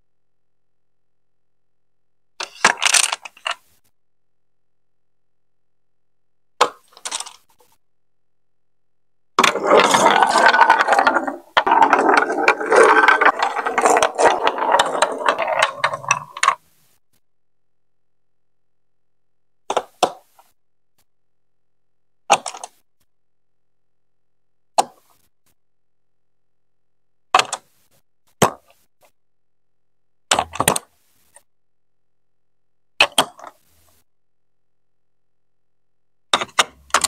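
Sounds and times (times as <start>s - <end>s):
marble rolling down plastic chutes: 2.4s - 3.6s, 6.6s - 7.6s, 9.4s - 16.6s, 30.3s - 30.9s, 36.4s - 37.0s.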